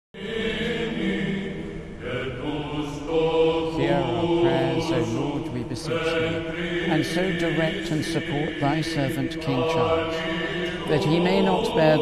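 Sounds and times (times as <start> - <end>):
man chanting a prayer: 3.7 - 12.0.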